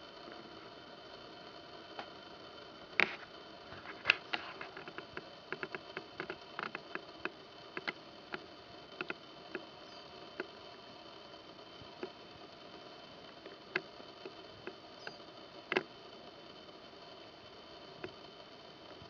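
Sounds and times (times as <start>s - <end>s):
faint steady hiss: 0.0s - 19.0s.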